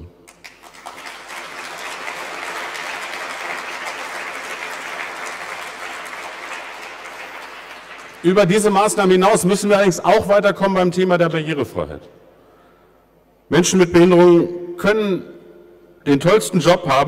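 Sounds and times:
audience applauding: 0.3 - 9.2.

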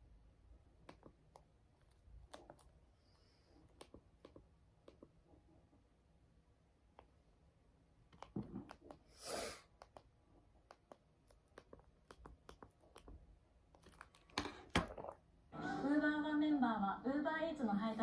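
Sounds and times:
small clicks and taps: 8.1 - 9.0.

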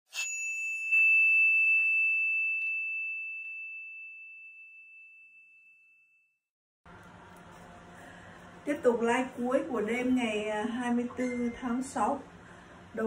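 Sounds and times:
bell-like ding: 0.1 - 6.3.

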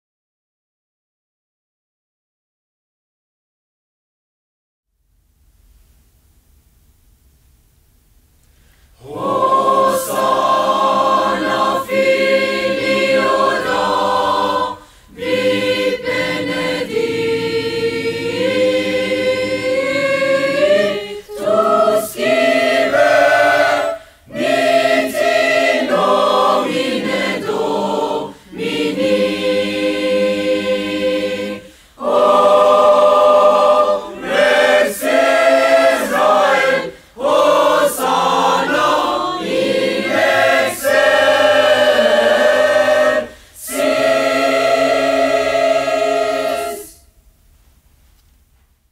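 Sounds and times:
choir singing: 9.0 - 47.1.

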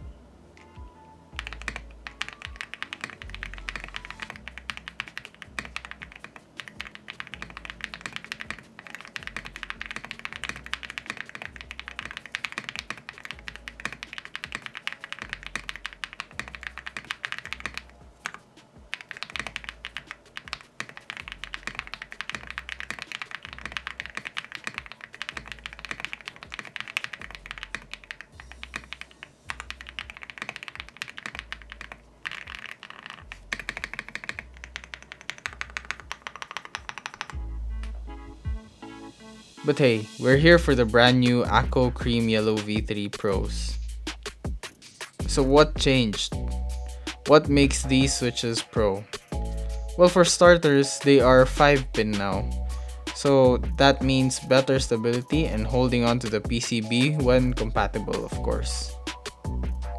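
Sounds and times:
mechanical keyboard typing: 1.4 - 37.4.

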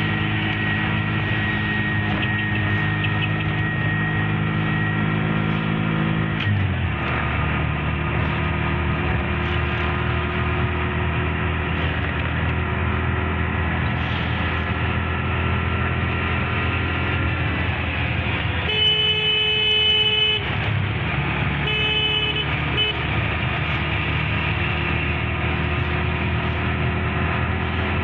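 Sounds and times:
car driving in traffic: 0.0 - 28.0
vehicle horn blasts: 18.6 - 20.6, 21.6 - 23.2.

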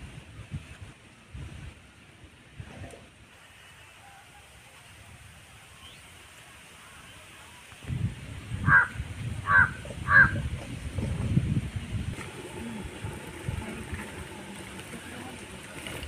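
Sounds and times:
crow cawing: 8.6 - 10.4.

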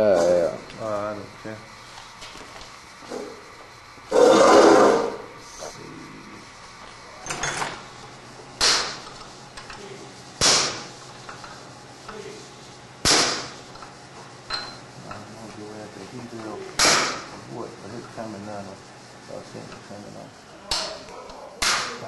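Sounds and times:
hammer striking steel punch: 10.4 - 10.9, 13.0 - 13.5, 16.8 - 17.3, 21.6 - 22.0.

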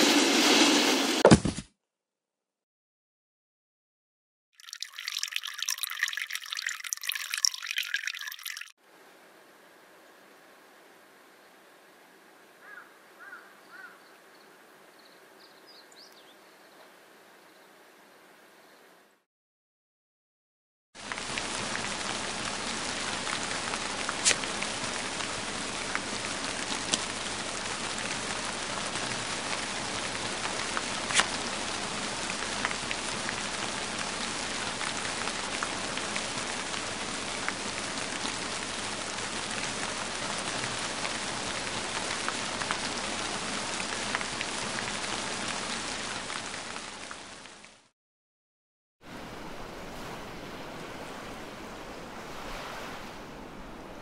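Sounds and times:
steady rain falling: 21.0 - 47.9.

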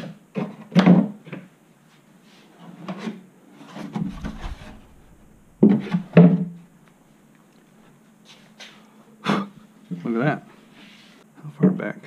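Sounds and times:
wood rubbing and scraping: 3.7 - 6.2.

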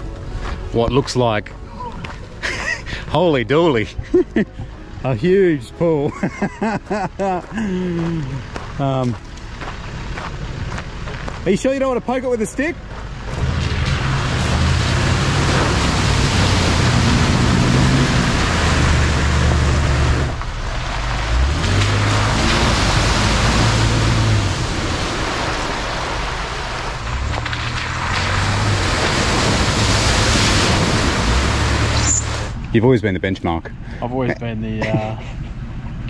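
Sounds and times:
engine revving under load: 13.0 - 32.6
water splashing: 13.2 - 32.6.

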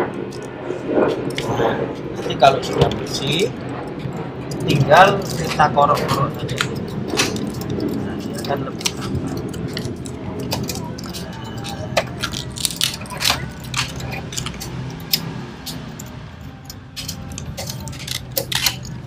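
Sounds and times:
hand tool scraping metal: 4.5 - 19.0.

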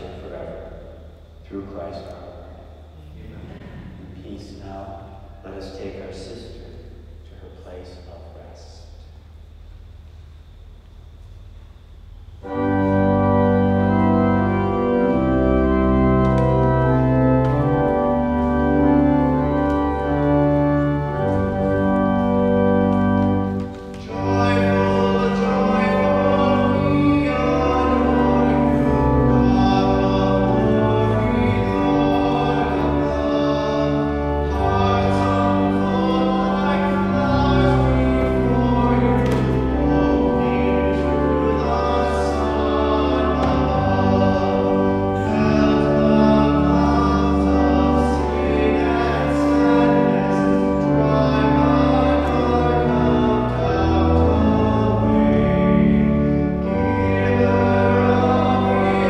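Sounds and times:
church organ playing a hymn: 0.0 - 59.0
people singing: 24.0 - 55.8, 56.7 - 59.0.

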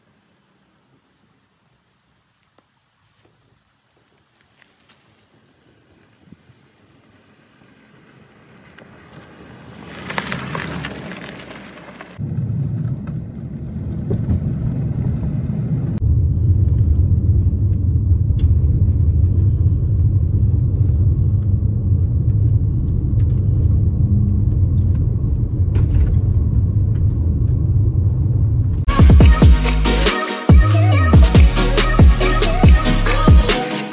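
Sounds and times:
vehicle approaching over gravel: 4.0 - 28.9
tyres rumbling on gravel road: 4.0 - 29.0
music: 28.9 - 33.9.

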